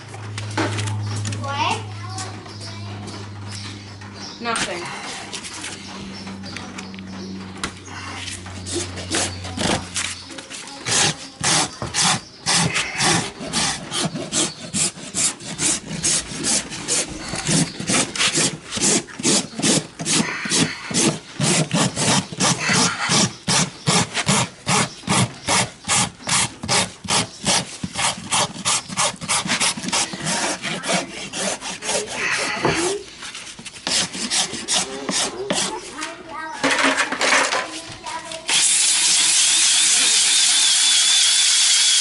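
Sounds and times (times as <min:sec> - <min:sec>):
rasp filing hoof: 0:08.0 - 0:36.0.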